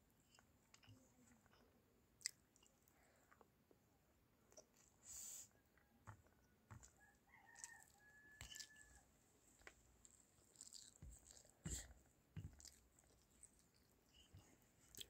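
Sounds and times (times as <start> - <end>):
fingers squishing rice on plate: 5.7 - 9.0.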